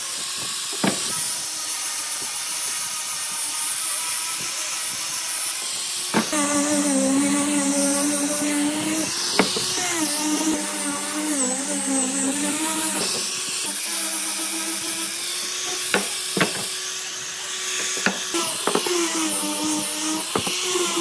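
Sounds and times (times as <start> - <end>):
power tool motor running: 0.0 - 21.0
sharp knocks: 9.3 - 9.8.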